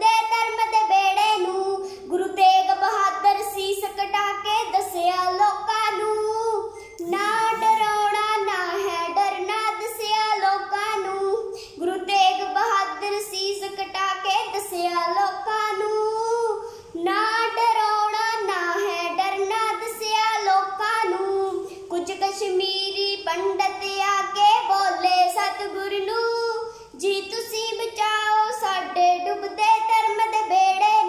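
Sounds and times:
girl singing: 0.0s - 31.0s
girl breathing: 1.8s - 2.1s, 11.4s - 11.8s, 16.6s - 17.0s, 26.6s - 27.0s.

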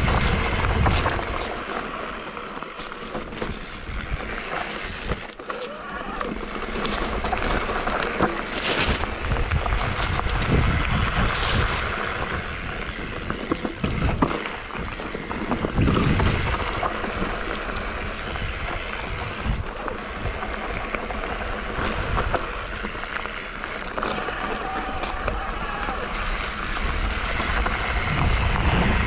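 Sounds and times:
wind rush on microphone: 0.0s - 1.7s, 8.8s - 23.0s, 24.7s - 29.0s
bike knocks and rattles: 0.0s - 29.0s
bike tyre noise: 0.0s - 29.0s.

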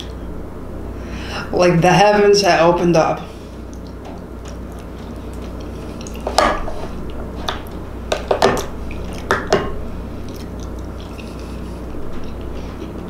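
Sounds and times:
wet chewing smacks: 3.6s - 7.8s, 8.6s - 13.0s.

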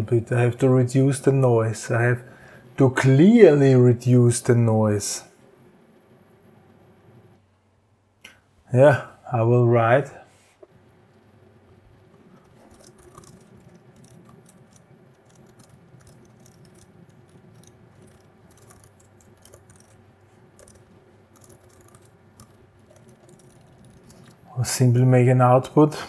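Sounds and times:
keyboard typing: 12.2s - 24.5s.

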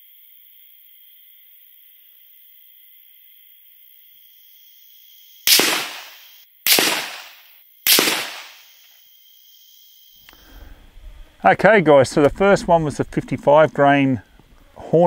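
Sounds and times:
rifle shots: 5.5s - 8.7s.

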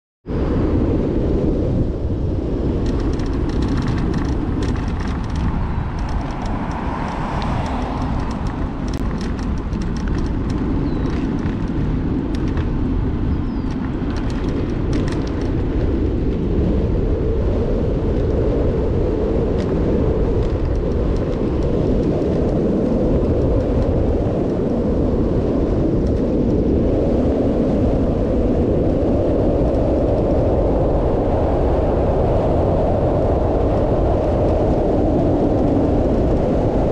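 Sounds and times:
wind rushing over microphone: 0.2s - 36.9s
bicycle road noise: 0.4s - 36.9s
light clicks and ticks: 2.8s - 12.7s, 13.6s - 15.8s, 19.6s - 22.6s.

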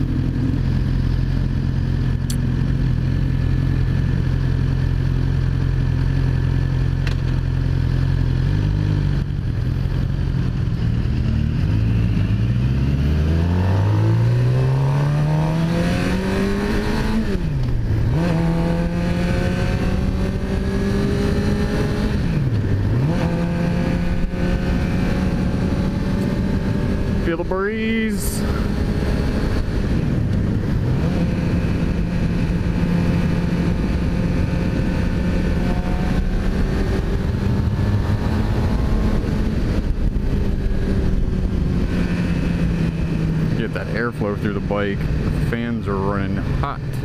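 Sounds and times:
motorcycle engine accelerating: 0.0s - 47.0s.

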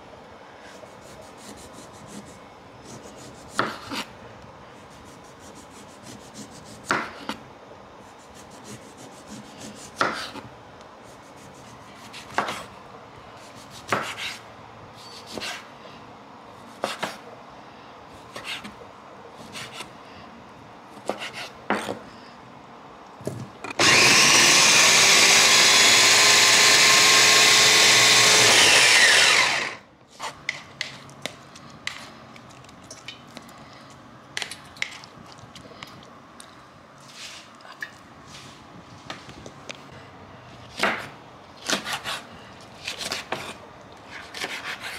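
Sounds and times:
knife cutting on wooden board: 21.0s - 22.0s, 42.9s - 44.9s
blender motor running: 23.8s - 29.8s.

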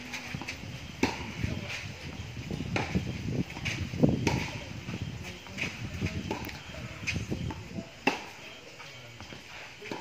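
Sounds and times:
racket hitting tennis ball: 0.0s - 1.9s, 2.7s - 4.7s, 5.6s - 8.5s, 9.8s - 10.0s.

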